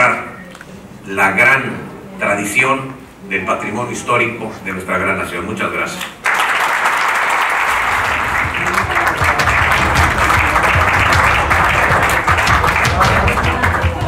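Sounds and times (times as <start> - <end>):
audience applauding: 6.1 - 14.0
music with pulsing beat: 7.9 - 14.0.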